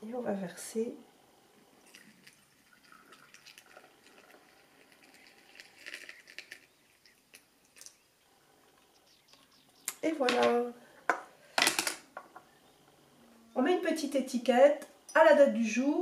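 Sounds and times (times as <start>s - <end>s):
liquid trickling into jar: 1.8s - 8.0s.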